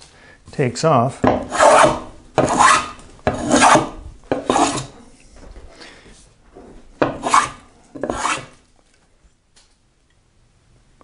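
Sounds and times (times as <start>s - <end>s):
hand plane rasping on wood: 1.3s - 5.0s, 7.0s - 8.6s.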